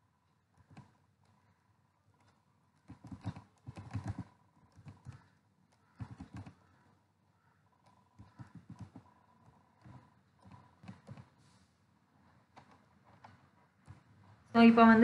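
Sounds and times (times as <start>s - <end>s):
typing on computer keyboard: 0.6s - 1.4s, 2.2s - 6.8s, 7.8s - 11.4s, 12.5s - 14.3s.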